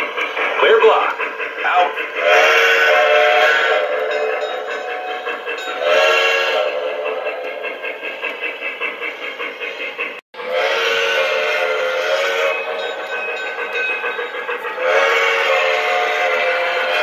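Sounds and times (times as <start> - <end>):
steam chuffing: 0.0 - 17.0
steam whistle blowing: 2.2 - 4.6, 5.8 - 7.4, 10.4 - 12.9, 14.8 - 17.0.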